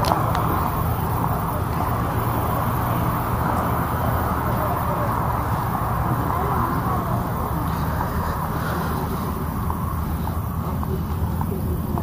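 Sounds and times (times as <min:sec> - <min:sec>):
road traffic hum: 0:00.0 - 0:12.0.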